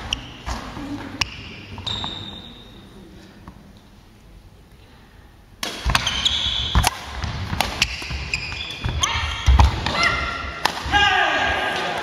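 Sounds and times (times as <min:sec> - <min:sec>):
court shoes squeaking: 0:00.0 - 0:03.1, 0:05.8 - 0:10.2
rackets striking shuttlecock: 0:05.6 - 0:08.9.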